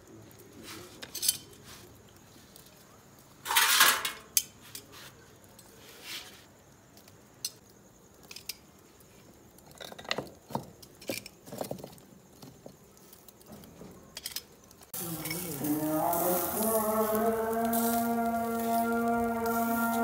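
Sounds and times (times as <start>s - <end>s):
background music sustained tones: 15.0s - 20.0s
metal skewers clinking: 15.1s - 16.7s.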